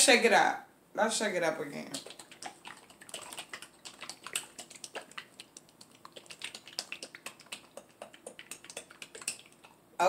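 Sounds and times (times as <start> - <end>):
sauce bottle being shaken: 1.9 - 9.8.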